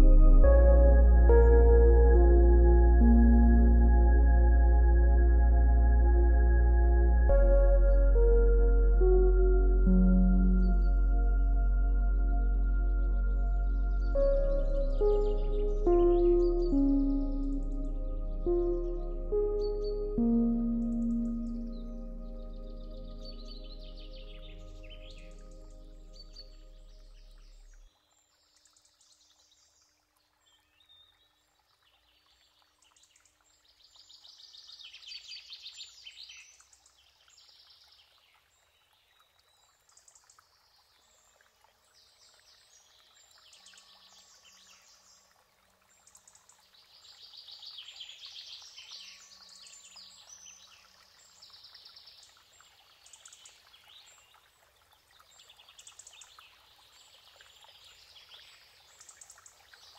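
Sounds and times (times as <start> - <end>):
birds chirping and trilling: 7.3 - 27.6.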